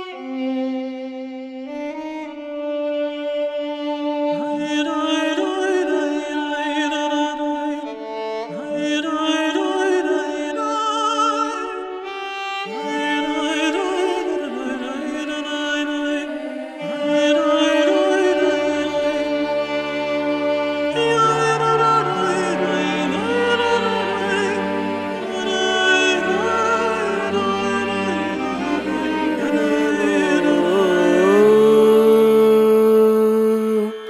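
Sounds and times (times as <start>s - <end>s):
sustained string chords: 11.6s - 34.0s.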